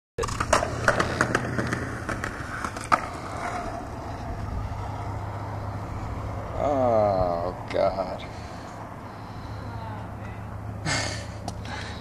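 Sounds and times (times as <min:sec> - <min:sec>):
sharp skateboard clack: 0:00.2 - 0:03.9
skateboard clicks and knocks: 0:00.2 - 0:05.1
skateboard rolling on pavement: 0:00.2 - 0:10.8.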